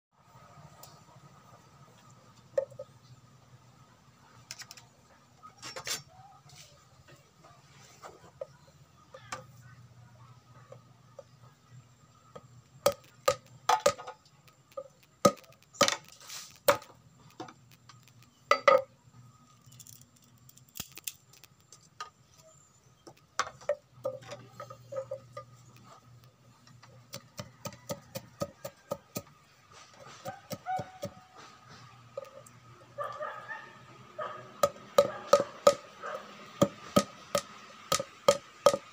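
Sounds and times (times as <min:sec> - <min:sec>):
machete chopping bamboo: 0:12.9 - 0:14.1, 0:15.2 - 0:17.0, 0:34.6 - 0:35.9, 0:36.6 - 0:38.9.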